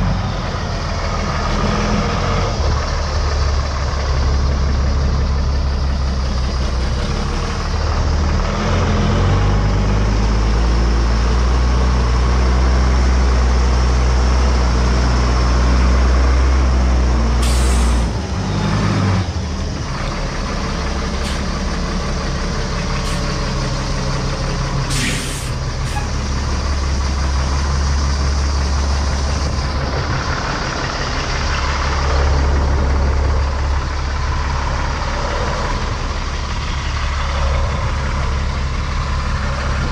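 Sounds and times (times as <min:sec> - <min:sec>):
diesel engine idling: 0:00.0 - 0:39.9
air release hiss: 0:17.4 - 0:18.1, 0:24.9 - 0:26.1.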